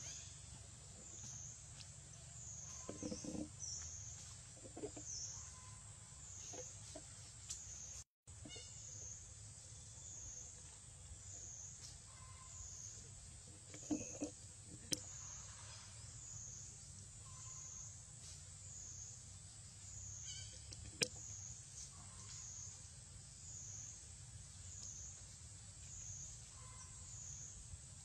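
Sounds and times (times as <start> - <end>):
forest insects chorus: 0.0 - 28.0.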